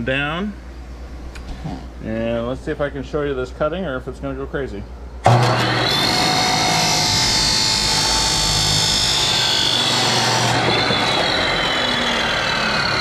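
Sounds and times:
cut-off saw cutting plastic pipe: 0:05.2 - 0:13.0.

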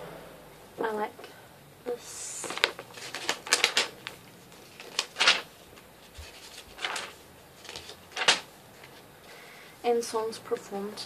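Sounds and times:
paper pages rustling: 0:02.1 - 0:09.2
booklet pages tapping: 0:02.4 - 0:09.0.

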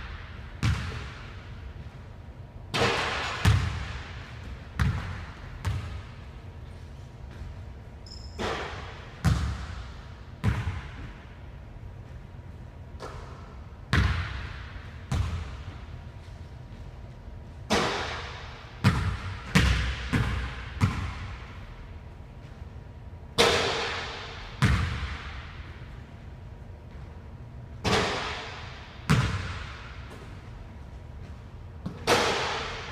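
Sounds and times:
basketball bouncing on wooden floor: 0:00.6 - 0:01.2, 0:03.4 - 0:04.0, 0:04.8 - 0:06.0, 0:08.1 - 0:09.8, 0:13.9 - 0:15.7, 0:18.8 - 0:21.4, 0:29.1 - 0:30.4
basketball hitting hoop: 0:00.6 - 0:01.3, 0:02.7 - 0:04.2, 0:04.8 - 0:06.1, 0:08.3 - 0:11.1, 0:13.0 - 0:15.7, 0:17.7 - 0:21.4, 0:23.4 - 0:25.4, 0:27.8 - 0:30.4, 0:31.8 - 0:32.9.

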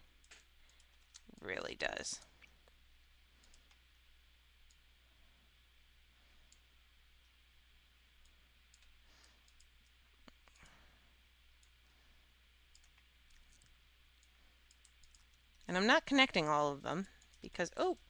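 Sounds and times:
faint low hum: 0:00.0 - 0:18.0
computer mouse clicks: 0:00.2 - 0:01.4, 0:03.4 - 0:03.8, 0:08.2 - 0:10.7, 0:12.7 - 0:15.7.

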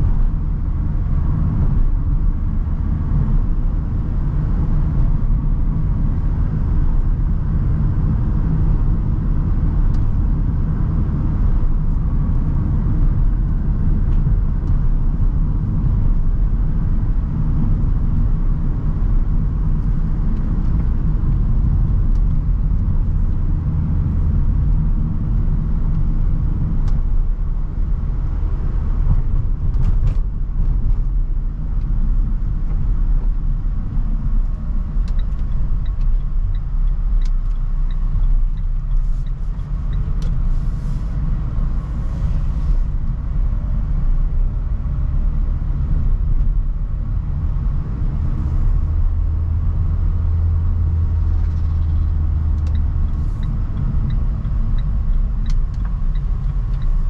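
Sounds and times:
van engine and tyre rumble: 0:00.0 - 0:57.0.

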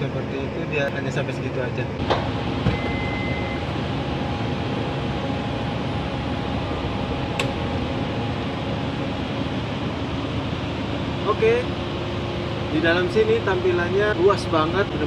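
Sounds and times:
steady hum and hiss: 0:00.0 - 0:15.0
short high beep: 0:02.7 - 0:03.6
sharp click: 0:07.3 - 0:07.6.

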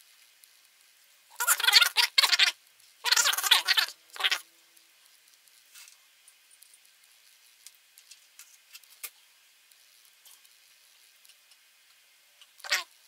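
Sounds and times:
small parts clicking and tapping: 0:05.2 - 0:12.7.

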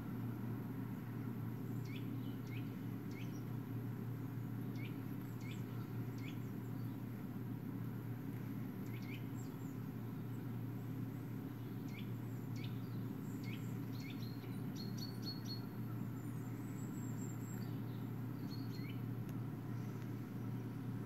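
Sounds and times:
steady low hum: 0:00.0 - 0:21.0
birds chirping through speakers: 0:01.6 - 0:03.7, 0:04.3 - 0:07.1, 0:08.8 - 0:10.6, 0:11.4 - 0:19.1.

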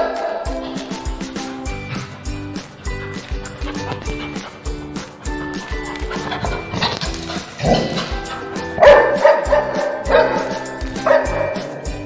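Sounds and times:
background music with a beat: 0:00.0 - 0:12.0
dog barking: 0:05.4 - 0:11.8.

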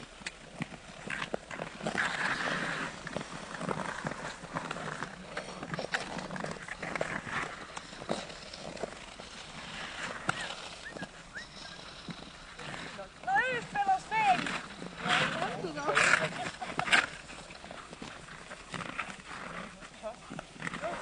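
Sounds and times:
ice skate blades scraping ice: 0:00.0 - 0:21.0.

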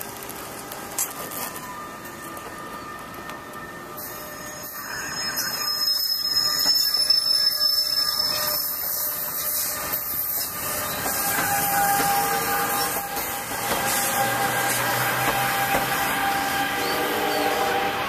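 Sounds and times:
train wheels rushing on rails: 0:04.0 - 0:18.0.

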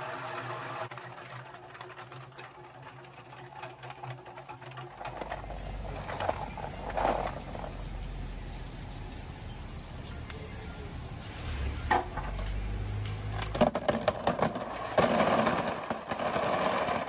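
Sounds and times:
walnuts clicking and clattering: 0:00.9 - 0:08.2, 0:12.1 - 0:17.0
machine motor hum: 0:04.8 - 0:13.8.

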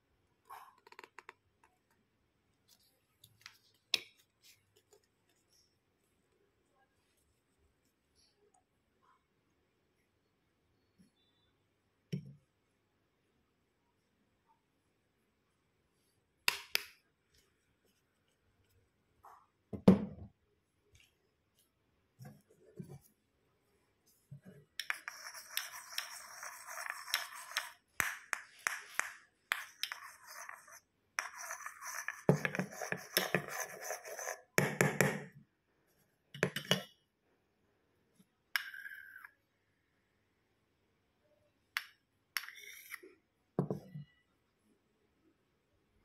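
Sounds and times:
metal spoon scraping plastic bowl: 0:24.8 - 0:35.0.

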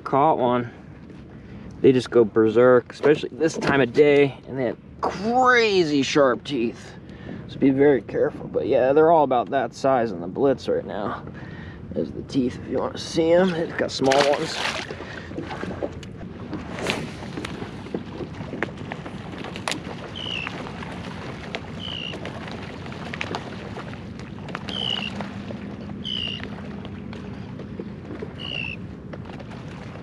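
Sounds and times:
water lapping against hull: 0:00.0 - 0:30.0.

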